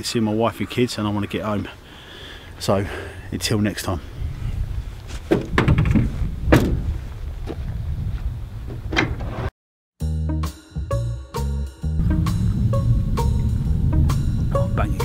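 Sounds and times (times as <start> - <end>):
knocks and thumps: 5.3 - 7.6
music with a steady beat: 10.0 - 15.0
steady low rumble: 12.0 - 15.0.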